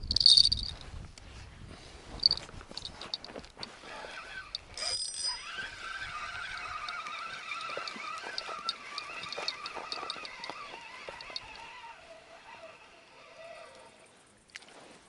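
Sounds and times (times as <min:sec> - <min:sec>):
fishing reel whirring: 0:00.0 - 0:00.8, 0:02.2 - 0:14.1
high ringing tone: 0:04.4 - 0:11.6.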